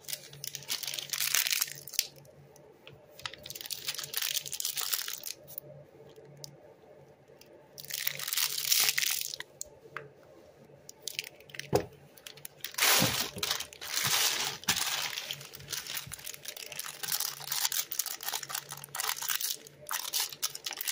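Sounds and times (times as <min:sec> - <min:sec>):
plastic pouch crinkling: 0:00.0 - 0:02.2, 0:03.2 - 0:05.6, 0:07.8 - 0:09.6, 0:11.0 - 0:20.9.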